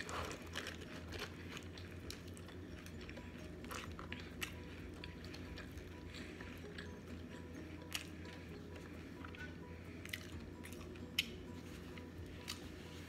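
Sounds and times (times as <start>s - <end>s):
chips crunching: 0.0s - 6.3s
low steady hum: 0.0s - 13.0s
person chewing: 0.0s - 13.0s.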